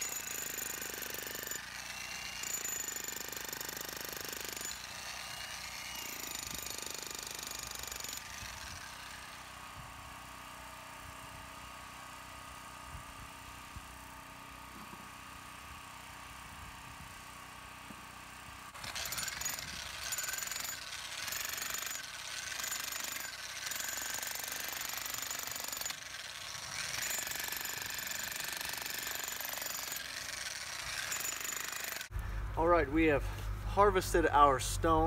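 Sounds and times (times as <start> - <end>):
jackhammer breaking stone: 0.0 - 9.4, 18.8 - 32.1.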